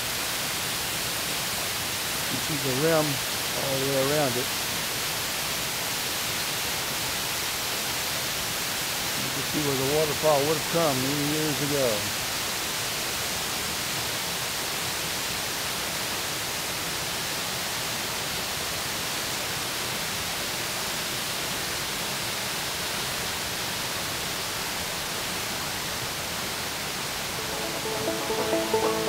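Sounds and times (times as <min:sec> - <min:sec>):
waterfall rushing: 0:00.0 - 0:14.5, 0:23.8 - 0:29.0
music: 0:27.3 - 0:29.0.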